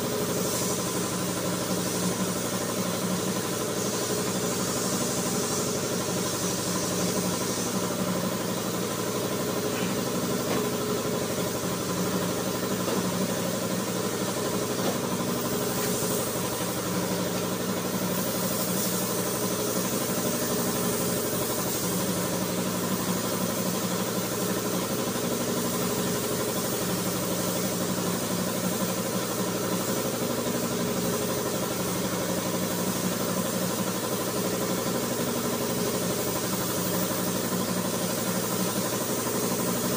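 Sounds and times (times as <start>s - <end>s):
spray gun hissing: 0.0s - 39.9s.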